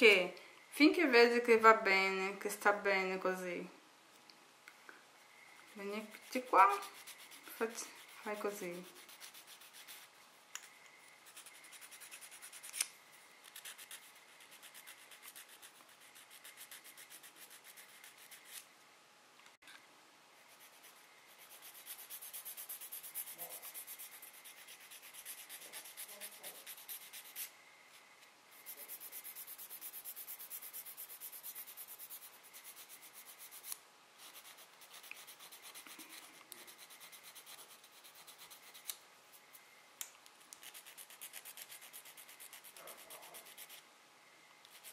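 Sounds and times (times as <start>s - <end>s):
nail file rasping: 5.7s - 18.6s, 20.5s - 27.5s, 28.6s - 39.0s, 40.5s - 43.8s, 44.6s - 44.9s.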